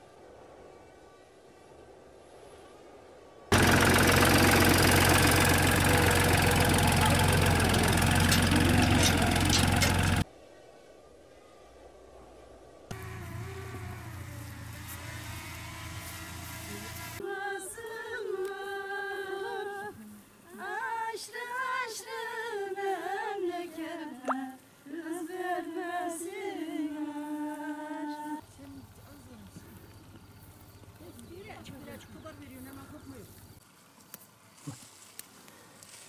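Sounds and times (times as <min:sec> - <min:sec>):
tractor engine running: 0:03.5 - 0:10.2, 0:12.9 - 0:17.2
woman singing unaccompanied: 0:17.2 - 0:28.9.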